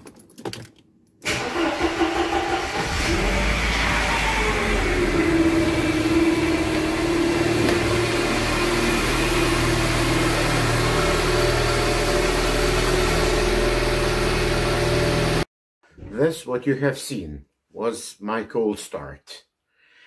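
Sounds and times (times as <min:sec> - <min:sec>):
car engine running: 0:02.7 - 0:15.4.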